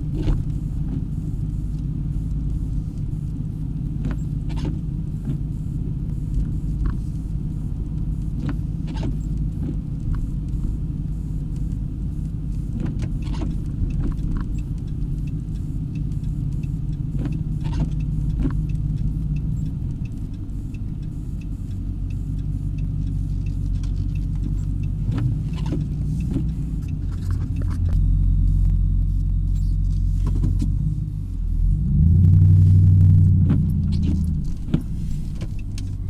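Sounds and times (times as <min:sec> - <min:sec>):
engine and tyre rumble: 0:00.0 - 0:36.0
light rattles and clicks: 0:11.6 - 0:28.0.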